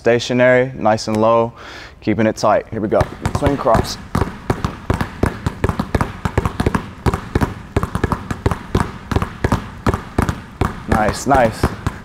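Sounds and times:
basketballs bouncing on hardwood: 2.9s - 12.0s.

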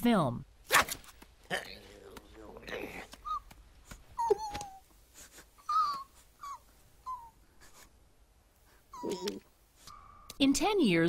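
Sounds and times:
cartoon squirrel squeaking: 3.2s - 3.6s, 4.2s - 4.9s, 5.6s - 7.4s, 8.9s - 9.5s.

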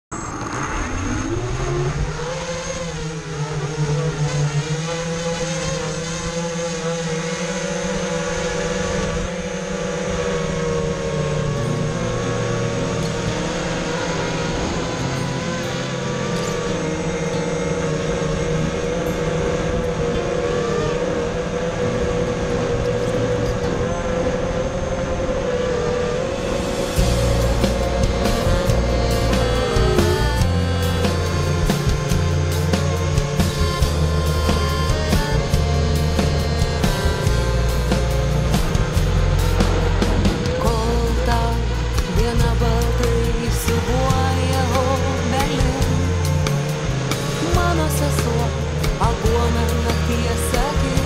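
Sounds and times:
quadcopter propellers whining: 0.1s - 51.0s.

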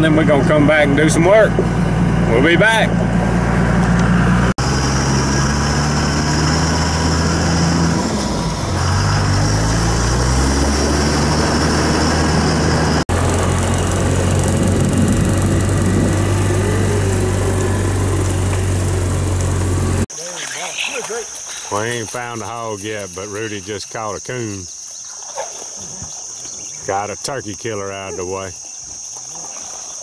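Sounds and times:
utility vehicle engine from cab: 0.0s - 20.1s
vehicle engine running: 0.0s - 20.1s.

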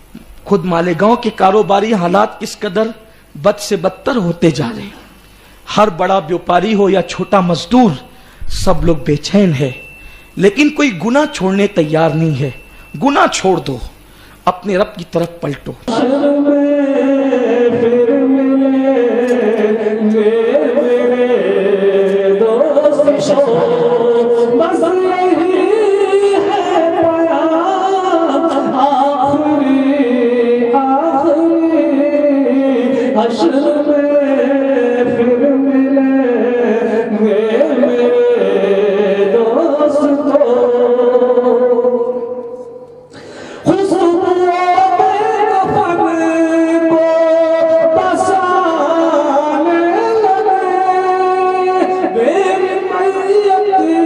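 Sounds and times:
man singing into a microphone: 14.6s - 42.8s, 43.6s - 54.0s.

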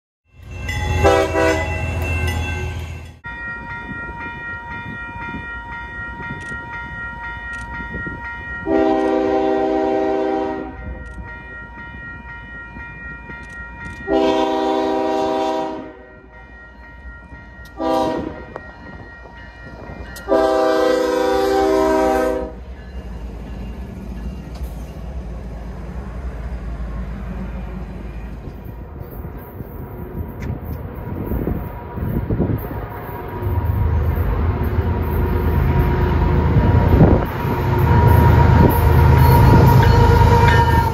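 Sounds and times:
crossing warning bell ringing: 0.3s - 40.9s
locomotive air horn: 0.8s - 3.0s, 8.6s - 10.8s, 14.1s - 16.1s, 17.8s - 18.6s, 20.3s - 22.6s, 34.8s - 40.9s
locomotive engine rumble: 17.2s - 40.9s.

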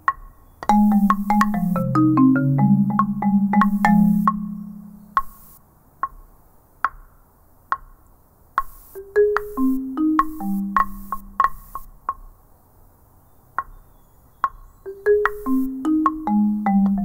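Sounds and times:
marimba played with mallets: 0.7s - 5.3s, 9.0s - 11.8s, 14.9s - 17.0s.

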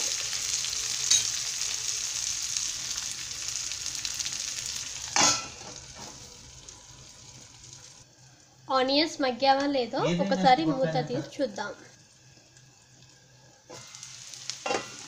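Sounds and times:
vegetables sizzling in hot oil: 0.0s - 15.0s
steel lid clanking on pan: 5.1s - 5.8s, 14.6s - 15.0s.

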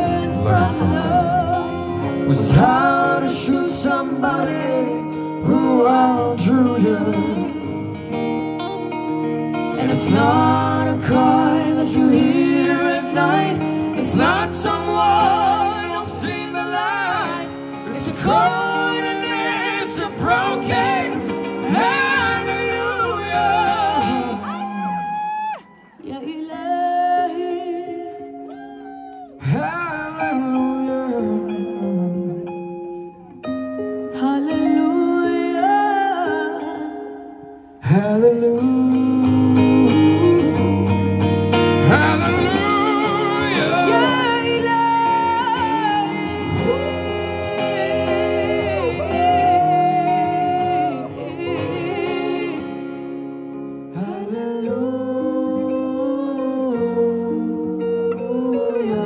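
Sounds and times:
man and woman singing duet: 0.0s - 8.0s, 9.8s - 32.5s, 34.1s - 59.0s
live band playing: 0.0s - 26.0s, 39.4s - 54.0s
prominent guitar: 0.0s - 59.0s.

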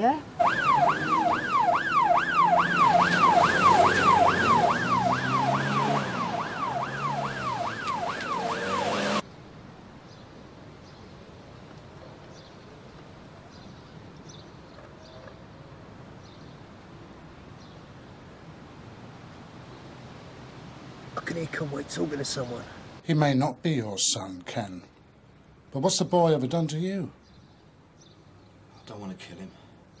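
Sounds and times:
police siren wailing: 0.4s - 9.2s
car engine racing: 2.5s - 9.2s.

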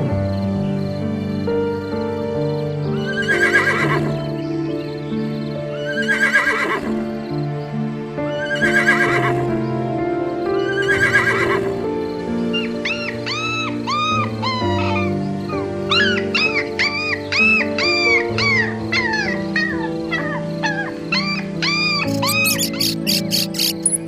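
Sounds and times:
background music: 0.0s - 24.0s
horse neighing: 6.0s - 7.0s, 22.0s - 24.0s.

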